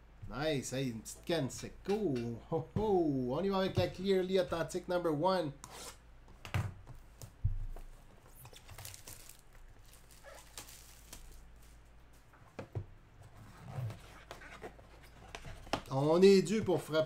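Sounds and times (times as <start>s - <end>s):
cardboard and wrapping crinkling: 7.8s - 12.4s.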